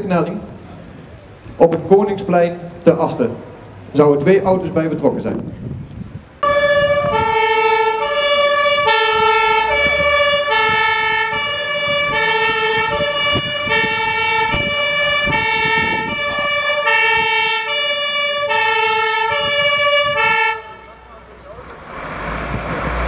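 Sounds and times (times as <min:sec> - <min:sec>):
two-tone fire engine siren: 0:06.4 - 0:21.0.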